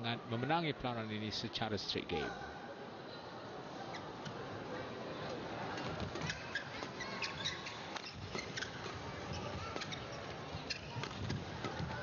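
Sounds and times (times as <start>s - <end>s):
crowd murmur: 2.3s - 8.0s
shoes squeaking on court: 5.7s - 12.0s.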